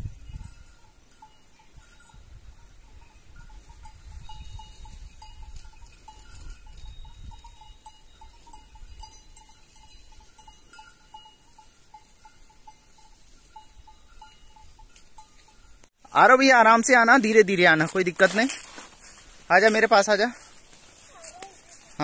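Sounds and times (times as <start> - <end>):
goat bells clinking: 0.0 - 22.0.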